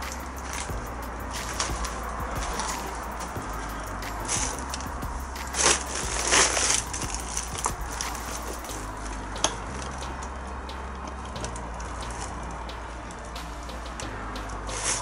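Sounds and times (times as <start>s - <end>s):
steady low rumble: 0.0s - 15.0s
footsteps crunching over debris: 4.1s - 8.8s.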